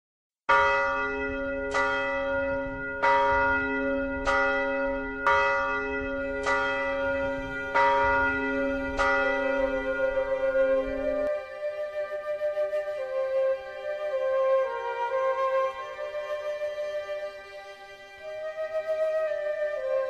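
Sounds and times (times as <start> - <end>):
church bell ringing: 0.5 - 11.6.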